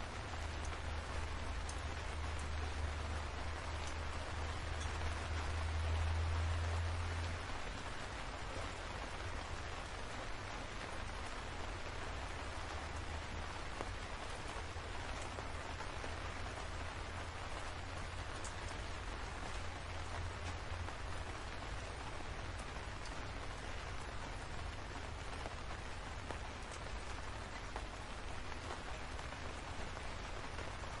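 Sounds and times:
rain falling on leafy trees: 0.0s - 31.0s.

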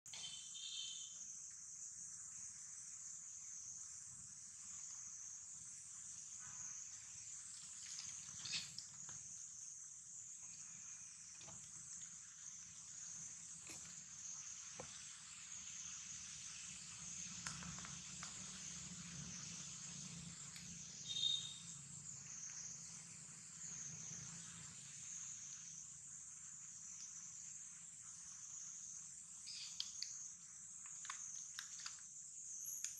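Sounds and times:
high chirp: 0.1s - 1.2s, 21.0s - 21.8s
insects chorus: 0.1s - 32.9s
faint clicks and rustles: 6.4s - 9.6s, 29.4s - 32.9s.

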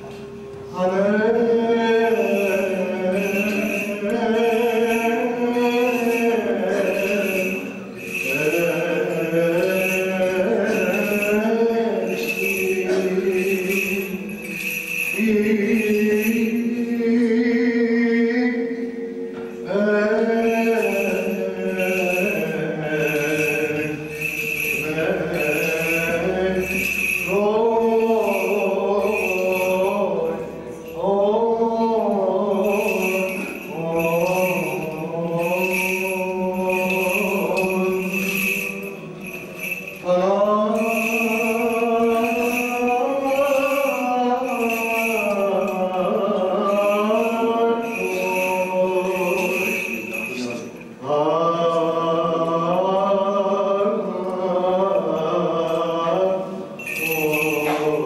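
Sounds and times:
held vocal drone: 0.0s - 58.0s
melismatic chant singing: 0.0s - 58.0s
censer bells jingling: 1.3s - 17.7s, 19.6s - 51.2s, 54.2s - 58.0s.

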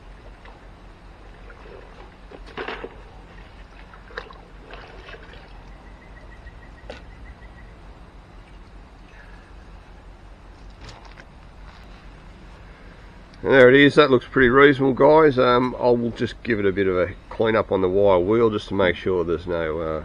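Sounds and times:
water sloshing in a bucket: 0.0s - 6.0s
water splash: 1.3s - 5.7s.

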